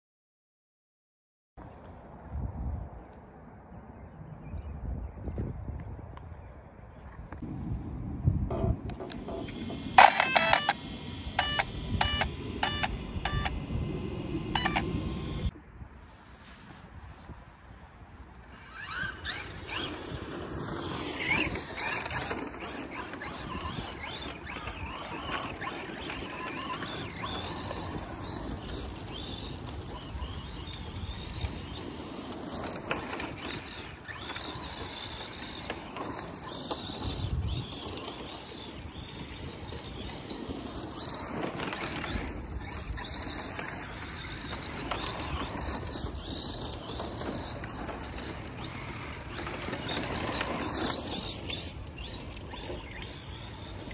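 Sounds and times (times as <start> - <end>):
electric motor whine: 8.5 - 15.5, 18.7 - 53.9.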